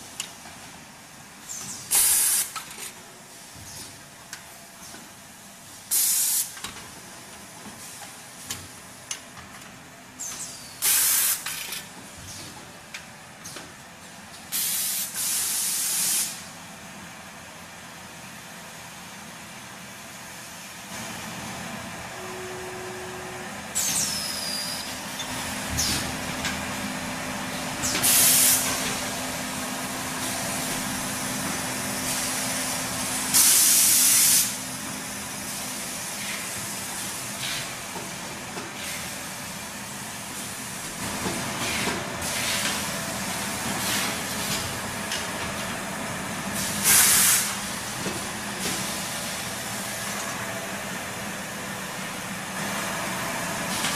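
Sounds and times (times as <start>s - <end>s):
compressed air hiss bursts: 1.9s - 2.6s, 5.9s - 6.6s, 10.8s - 11.6s, 14.5s - 16.5s, 27.9s - 28.7s, 33.3s - 34.6s, 46.6s - 47.6s
steady machine hum: 20.9s - 33.4s.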